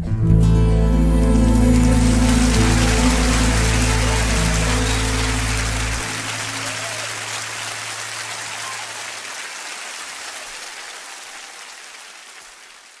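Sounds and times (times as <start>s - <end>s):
band holding low note: 0.1s - 6.6s
audience applauding: 1.2s - 13.0s.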